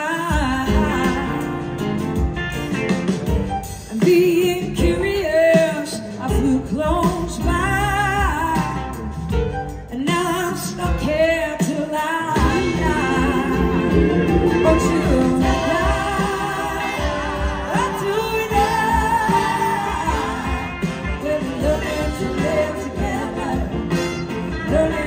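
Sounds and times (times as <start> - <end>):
woman singing with vibrato: 0.0 - 1.6, 10.0 - 25.0
drums: 0.0 - 25.0
electric guitar: 12.4 - 25.0.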